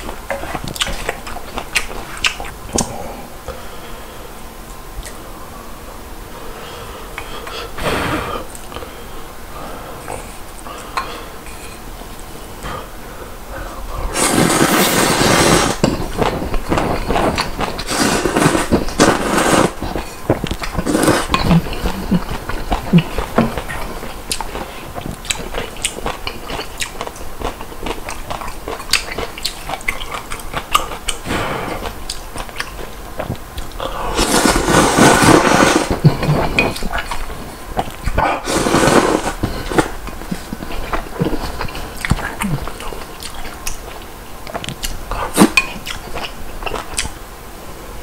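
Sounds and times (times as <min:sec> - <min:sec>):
chewing: 0:00.0 - 0:03.0, 0:15.3 - 0:47.2
person slurping noodles: 0:14.0 - 0:26.0, 0:33.8 - 0:37.4, 0:38.1 - 0:42.9.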